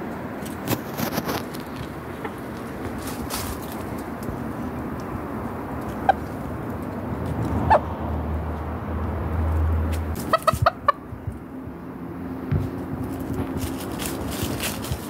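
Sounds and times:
chickens clucking: 0:00.8 - 0:07.9, 0:10.1 - 0:11.4.

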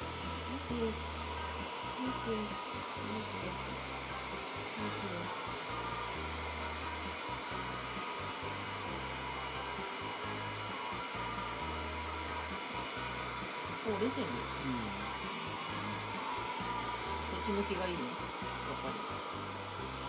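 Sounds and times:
hair dryer blowing: 0:00.0 - 0:20.0.

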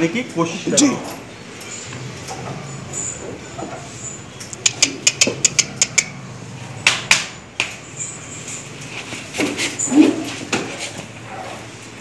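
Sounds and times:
hooves clicking on plank floor: 0:04.5 - 0:06.1.

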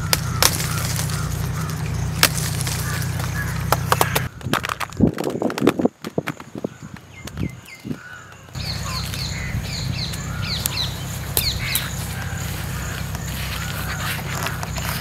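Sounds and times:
steady low hum: 0:00.0 - 0:04.4, 0:08.6 - 0:15.0
small fruits dropping into basket: 0:00.0 - 0:09.4
birds calling: 0:00.0 - 0:15.0.

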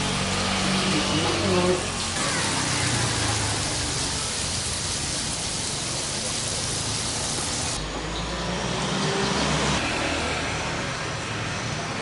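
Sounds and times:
vegetables sizzling in oil: 0:01.8 - 0:07.8.

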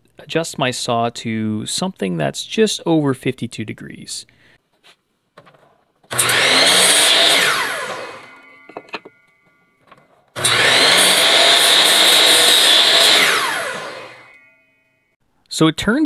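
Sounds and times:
miter saw cutting wood: 0:06.1 - 0:09.6, 0:10.4 - 0:14.6.

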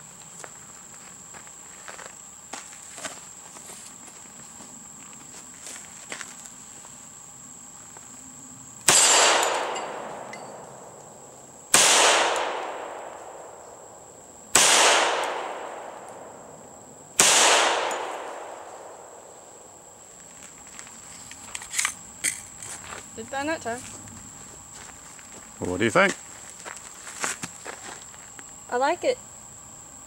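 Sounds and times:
pistol shots with echo: 0:08.8 - 0:10.6, 0:11.7 - 0:13.5, 0:14.5 - 0:16.3, 0:17.2 - 0:19.0.

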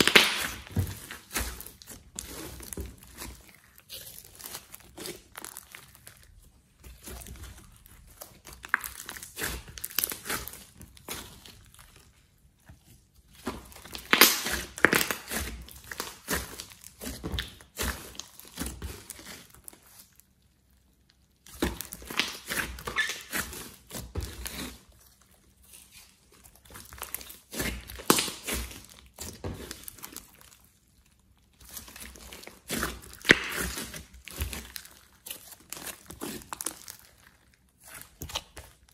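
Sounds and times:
slime squeezed crackling and popping: 0:00.0 - 0:38.9.

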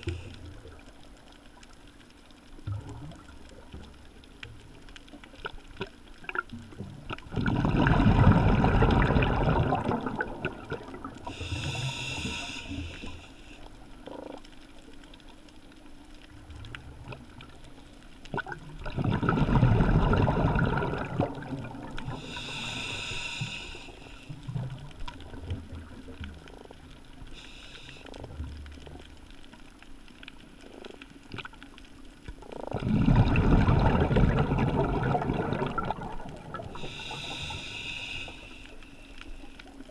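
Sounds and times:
exhaled bubbles rushing: 0:06.3 - 0:11.3, 0:18.3 - 0:22.3, 0:32.6 - 0:37.0
whistling hiss of inhalation: 0:11.3 - 0:13.6, 0:22.2 - 0:24.3, 0:27.4 - 0:28.1, 0:36.8 - 0:39.0.

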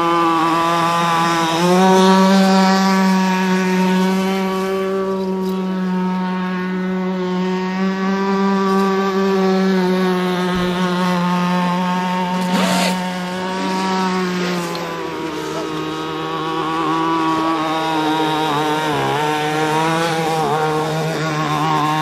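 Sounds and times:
rc boat electric motors whining: 0:00.0 - 0:22.0.

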